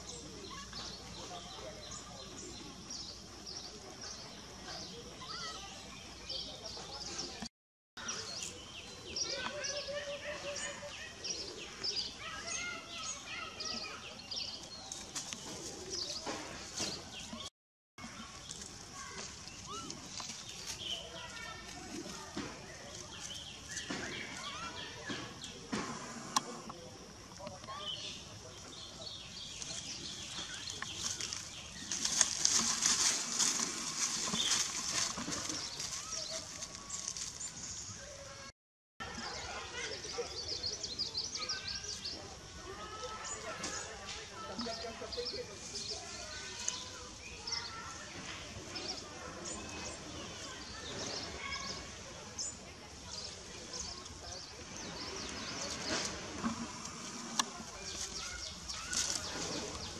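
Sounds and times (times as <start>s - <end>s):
dry rustling and crackling: 29.3s - 38.5s, 53.1s - 59.9s.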